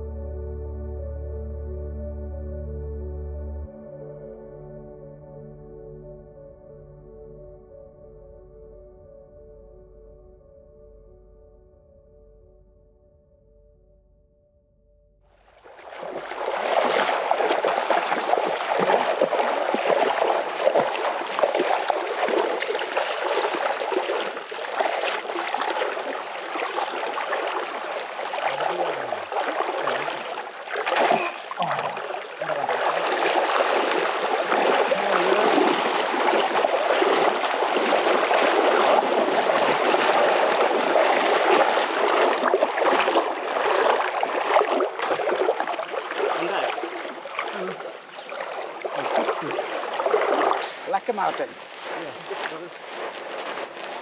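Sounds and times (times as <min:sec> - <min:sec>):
river water rushing: 0:15.6 - 0:54.0.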